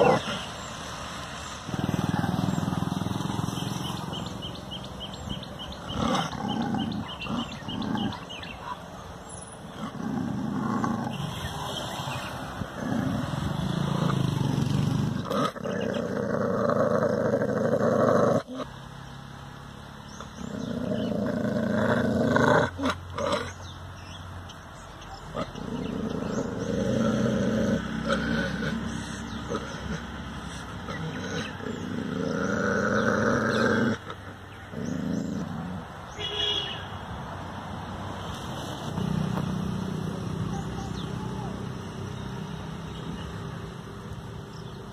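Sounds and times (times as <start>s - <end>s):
dog growling: 0.0s - 0.5s, 5.7s - 8.8s, 9.7s - 11.2s, 12.7s - 18.7s, 20.4s - 23.6s, 25.2s - 35.9s.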